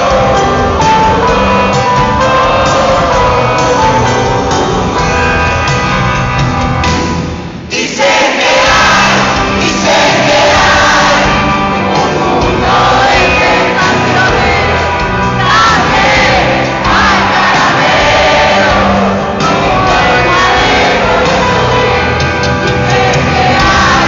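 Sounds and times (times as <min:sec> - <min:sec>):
person singing: 0:00.0 - 0:05.1, 0:07.7 - 0:24.0
crowd voices: 0:00.0 - 0:24.0
live rock band playing: 0:00.0 - 0:24.0.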